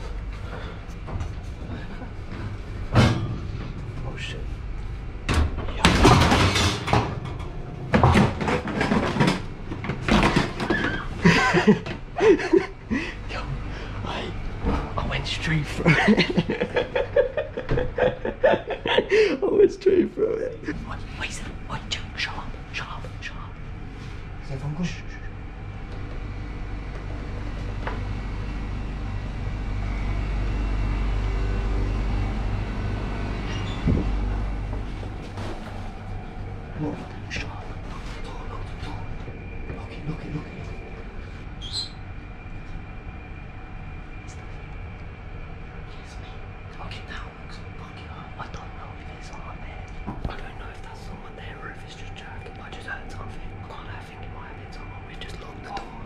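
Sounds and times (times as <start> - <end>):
low pulsing rumble: 0.0 - 56.0.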